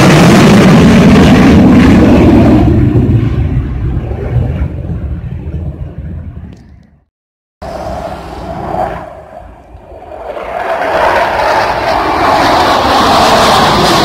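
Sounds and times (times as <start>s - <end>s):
fighter jets passing overhead: 0.0s - 14.0s.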